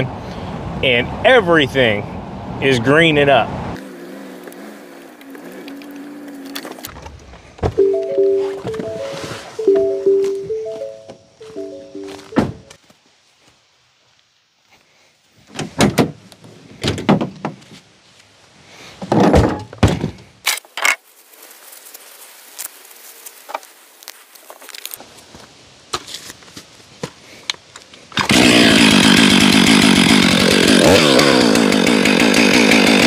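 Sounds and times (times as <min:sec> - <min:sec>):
tailgate knocks and thumps: 0:12.4 - 0:12.7, 0:15.6 - 0:16.2, 0:19.1 - 0:20.2
chainsaw running: 0:28.2 - 0:33.0.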